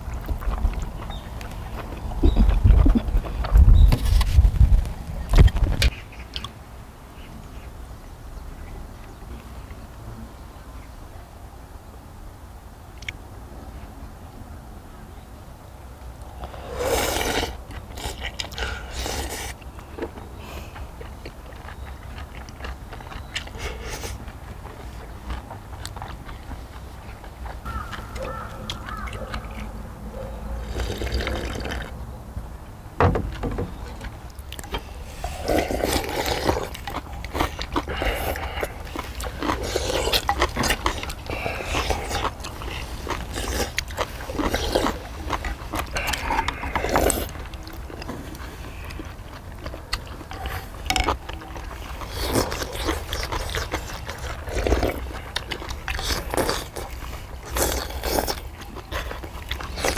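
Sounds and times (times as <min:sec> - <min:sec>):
slurping soup: 0:16.4 - 0:19.6, 0:30.6 - 0:32.0, 0:34.6 - 0:59.9.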